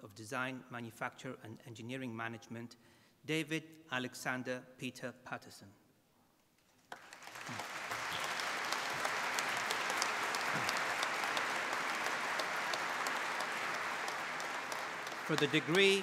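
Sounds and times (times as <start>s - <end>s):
audience applauding: 6.9s - 16.0s.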